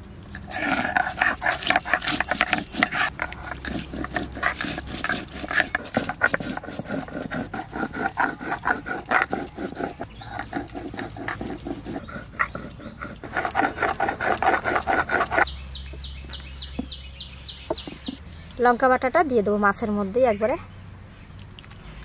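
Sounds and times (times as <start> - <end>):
stone rubbing on stone: 0.3 - 17.0.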